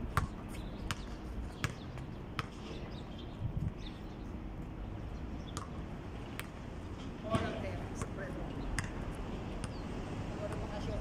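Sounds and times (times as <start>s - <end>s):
basketball bouncing on concrete: 0.1s - 2.6s, 6.4s - 6.6s, 7.2s - 9.0s, 10.4s - 11.0s.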